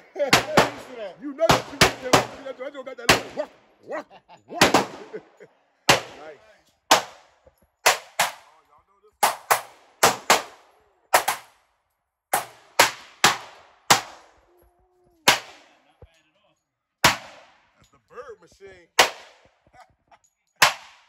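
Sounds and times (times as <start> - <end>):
pistol shots echoing: 0.2 - 3.6, 4.6 - 8.6, 9.2 - 11.6, 12.3 - 14.5, 15.2 - 16.1, 17.0 - 17.8, 18.9 - 19.6, 20.6 - 21.0.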